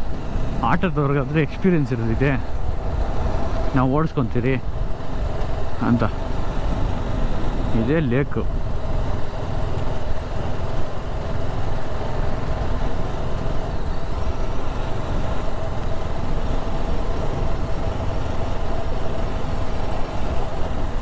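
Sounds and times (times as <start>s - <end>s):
wind noise rush: 0.0s - 21.0s
motorcycle engine running: 4.6s - 21.0s.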